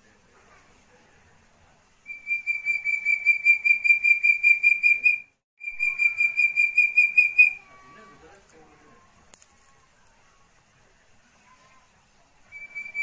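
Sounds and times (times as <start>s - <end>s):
bird whistled notes: 2.1s - 7.6s, 12.5s - 13.0s.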